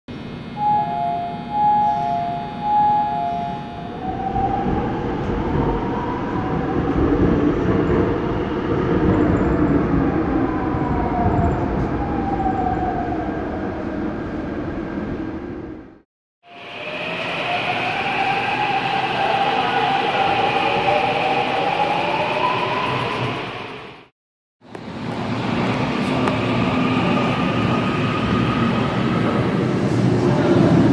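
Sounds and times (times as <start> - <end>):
two-tone alternating signal: 0.6 - 4.6
wheels rumbling on rail: 4.0 - 16.0, 16.6 - 30.9.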